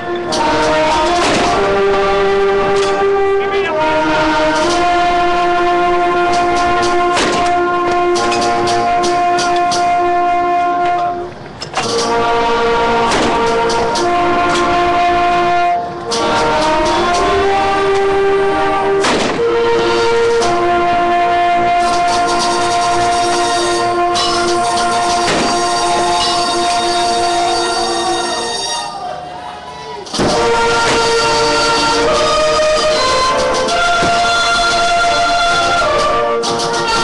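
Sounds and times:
bugle playing long notes: 0.0 - 29.2, 30.2 - 37.0.

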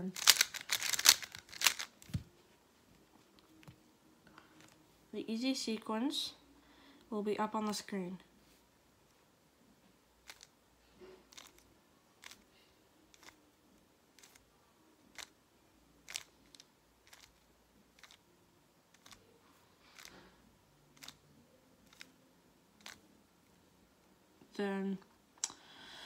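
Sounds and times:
plastic puzzle cube clicks: 0.2 - 2.2, 16.1 - 17.4.

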